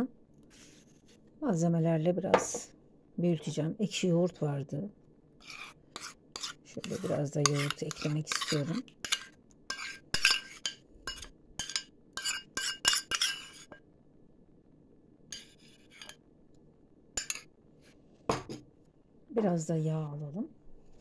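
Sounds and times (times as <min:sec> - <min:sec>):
metal spoon clinking on metal cup: 0:06.4 - 0:13.5, 0:17.2 - 0:17.4.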